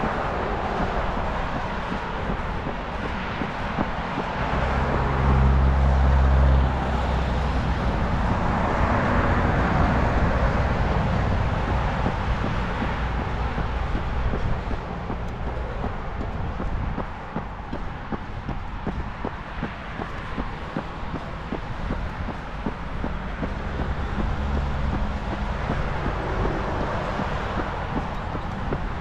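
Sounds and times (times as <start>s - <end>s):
tyre and road noise: 0.0s - 29.0s
vehicle engine hum: 0.0s - 29.0s.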